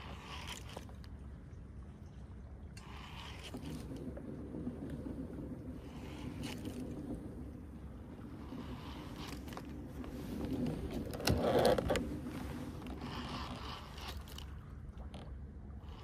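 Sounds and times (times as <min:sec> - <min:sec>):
water rushing along kayak hull: 0:00.0 - 0:16.0.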